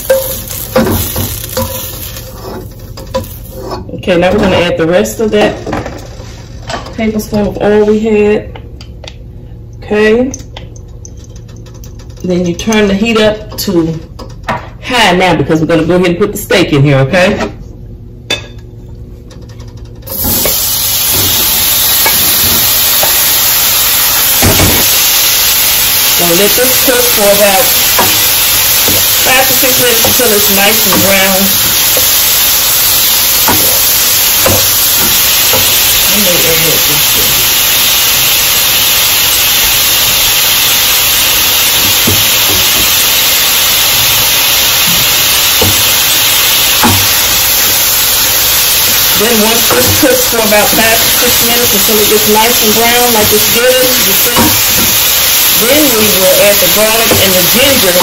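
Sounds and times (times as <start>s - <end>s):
meat sizzling in hot oil: 0.0s - 3.7s, 20.1s - 58.0s.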